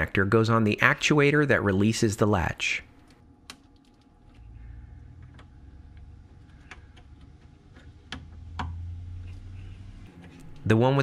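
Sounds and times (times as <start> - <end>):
low hum: 2.8 - 10.9.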